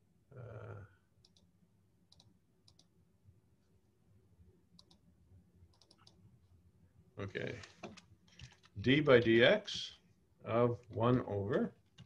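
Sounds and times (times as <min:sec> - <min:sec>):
computer mouse clicks: 0:01.2 - 0:01.5, 0:02.1 - 0:02.9, 0:04.8 - 0:05.0, 0:05.7 - 0:06.2.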